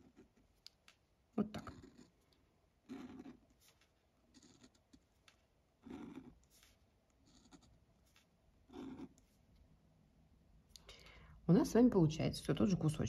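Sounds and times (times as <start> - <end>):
pen drawing on paper: 0.0 - 0.6, 1.5 - 2.2, 2.8 - 9.6.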